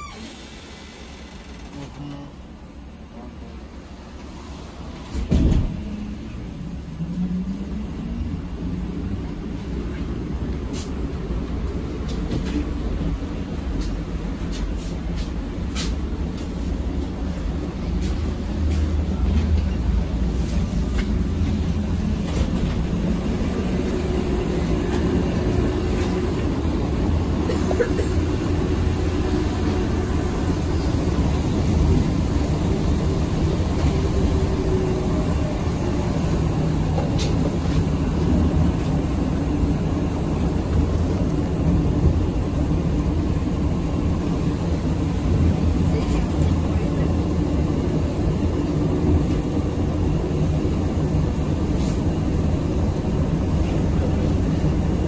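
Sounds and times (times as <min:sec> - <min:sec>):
trolleybus ride rumble: 0:00.0 - 0:55.0.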